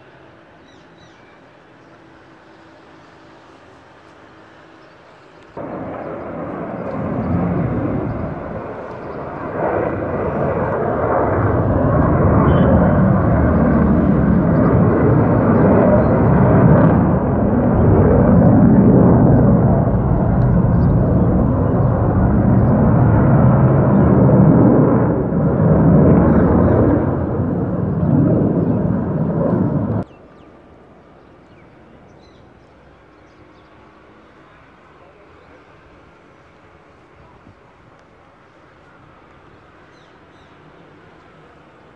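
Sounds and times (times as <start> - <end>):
fighter jet flying past: 5.6 - 30.1.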